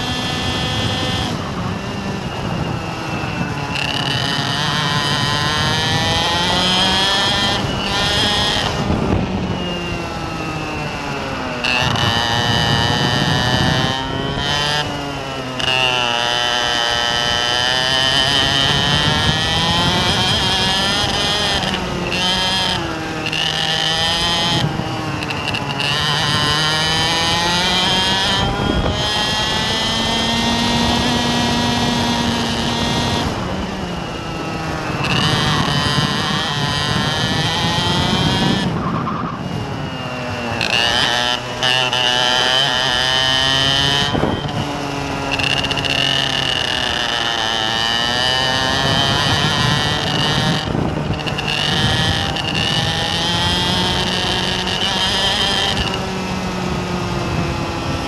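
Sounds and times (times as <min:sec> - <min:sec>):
steady high whine: 0:00.0 - 0:15.7
engine running: 0:00.0 - 0:58.0.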